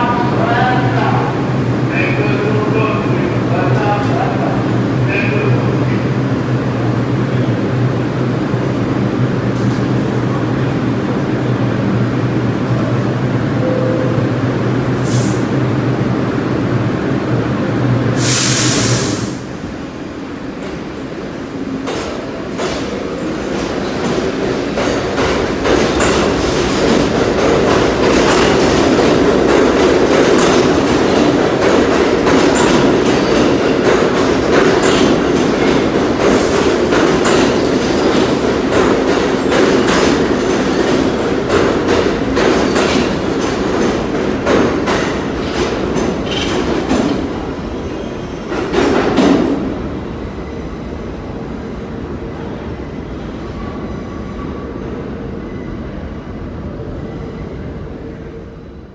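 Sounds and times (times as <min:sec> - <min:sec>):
subway train rumbling past: 0:00.0 - 0:58.9
wheels clacking over rail joints: 0:23.5 - 0:47.3.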